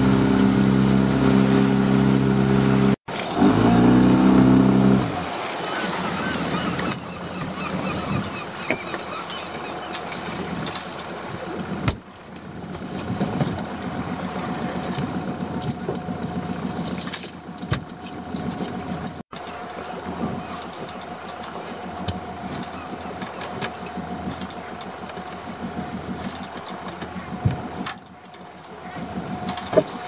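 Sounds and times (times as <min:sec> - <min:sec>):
boat engine idling: 0:00.0 - 0:30.0
knocks and clatter of gear: 0:11.7 - 0:30.0.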